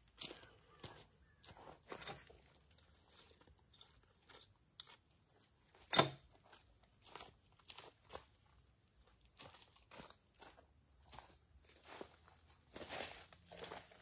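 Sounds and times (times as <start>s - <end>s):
footsteps on dry leaves: 9.3s - 14.0s.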